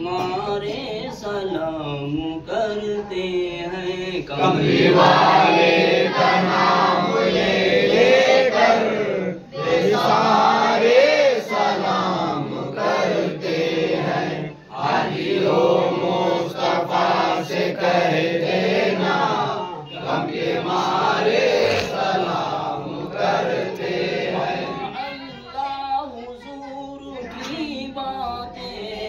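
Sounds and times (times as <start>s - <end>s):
men chanting together: 4.1s - 25.0s.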